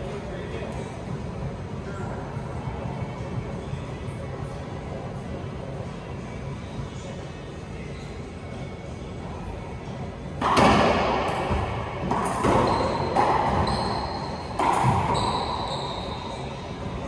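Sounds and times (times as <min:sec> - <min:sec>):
shoes squeaking on hardwood floor: 0:12.5 - 0:17.0.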